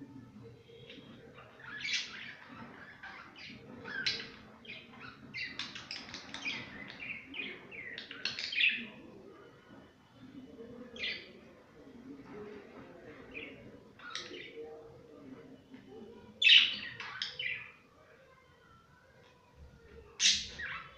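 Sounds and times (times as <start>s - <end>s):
budgerigars chirping and chattering: 0.8s - 9.0s, 16.4s - 17.8s, 20.2s - 20.9s.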